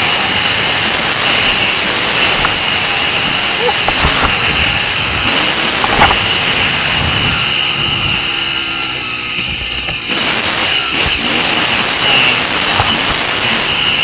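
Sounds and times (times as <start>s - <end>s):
dirt bike engine running: 0.0s - 14.0s
wind noise on helmet: 0.0s - 14.0s
knocks from rough ground: 1.4s - 8.4s.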